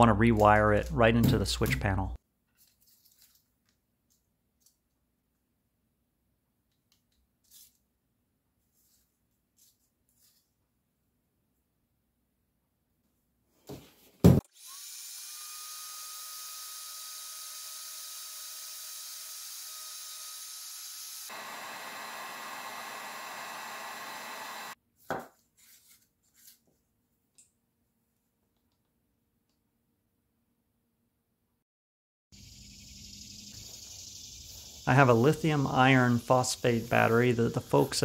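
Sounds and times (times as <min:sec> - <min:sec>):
heat gun blowing with whine: 0:14.4 - 0:24.8.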